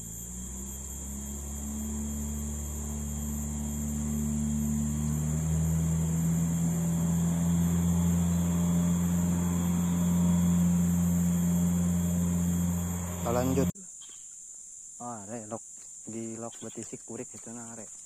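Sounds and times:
low engine drone: 0:00.0 - 0:13.8
high buzz of insects: 0:00.0 - 0:18.0.

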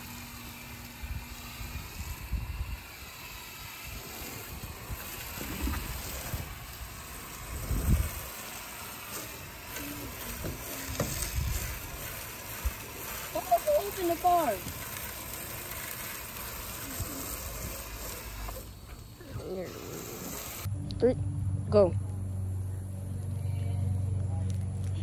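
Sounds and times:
foam sprayer hissing: 0:00.0 - 0:20.7
low rumbles: 0:15.7 - 0:25.0.

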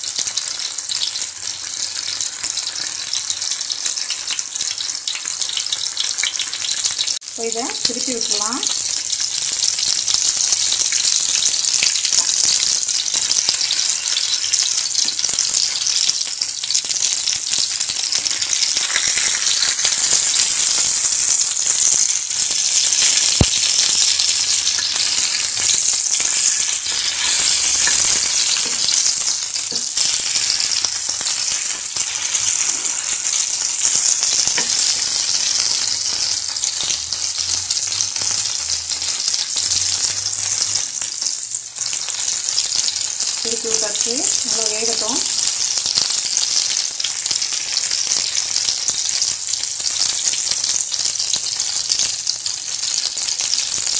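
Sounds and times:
fish sizzling in hot oil: 0:00.0 - 0:53.9
metal spatula turning fish: 0:17.8 - 0:22.1, 0:22.9 - 0:39.5.

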